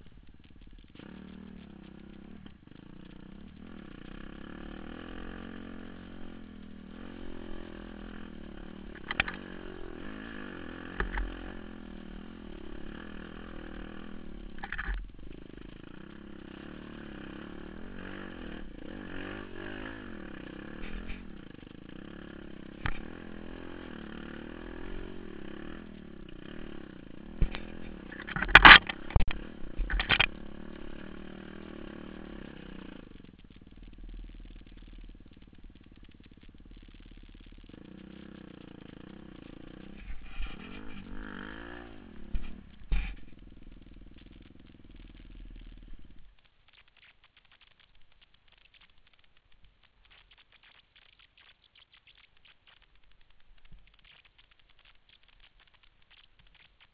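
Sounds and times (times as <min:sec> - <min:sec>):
motorcycle engine running: 0:00.0 - 0:56.9.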